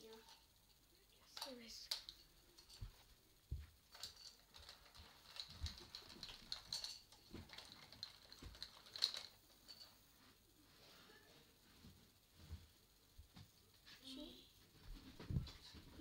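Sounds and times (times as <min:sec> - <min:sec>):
small hard objects clicking: 0:03.9 - 0:09.9.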